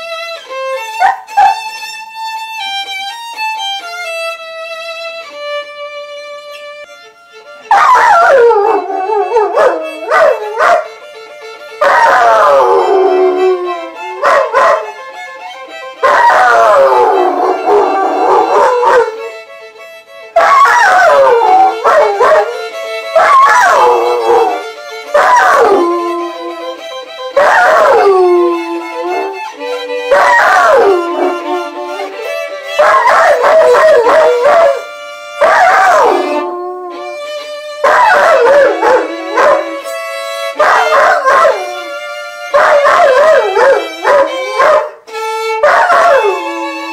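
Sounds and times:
violin sustained notes: 0.0 - 46.9
dog howling: 7.7 - 11.0, 11.8 - 19.4, 20.4 - 37.2, 37.8 - 39.9, 40.6 - 45.0, 45.6 - 46.9.

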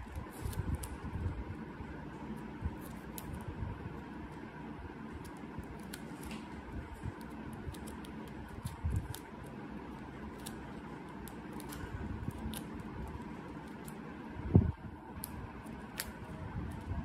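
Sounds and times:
adhesive tape crinkling: 0.0 - 1.4, 5.1 - 14.1.

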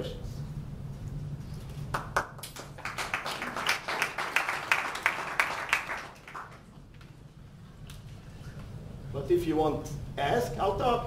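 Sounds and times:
audience applauding: 1.9 - 6.7.

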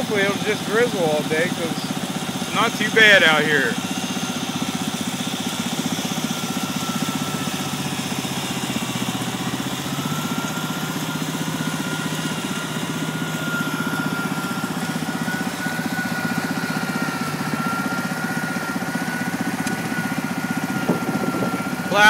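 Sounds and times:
garden tractor engine droning: 0.0 - 22.0
steady high whine: 0.0 - 22.0.

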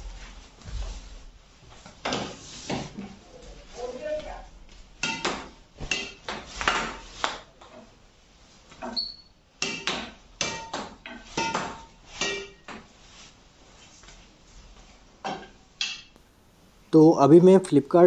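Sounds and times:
racket strings hitting shuttlecock: 5.0 - 7.8, 9.6 - 12.9.

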